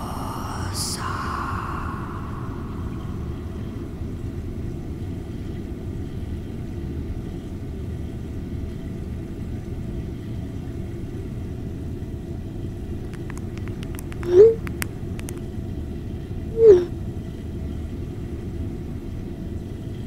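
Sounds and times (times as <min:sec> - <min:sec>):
low rumble drone: 0:00.0 - 0:05.7.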